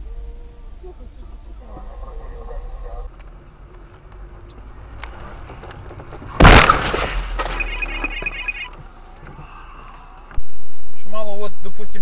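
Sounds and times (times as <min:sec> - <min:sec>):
vehicle crash with shattering glass: 0:06.3 - 0:08.7
rapid high beeping: 0:07.6 - 0:08.7.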